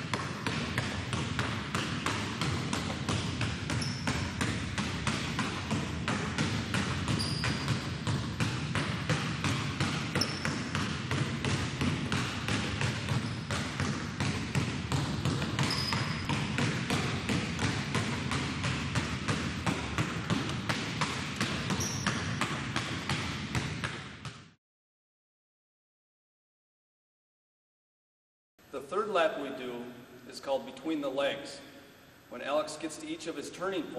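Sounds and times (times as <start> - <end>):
basketballs bouncing on hardwood: 0.0 - 24.6
shoe squeaks: 3.7 - 4.3, 7.1 - 7.7, 10.1 - 10.6, 13.2 - 13.5, 15.6 - 16.3, 21.7 - 22.4.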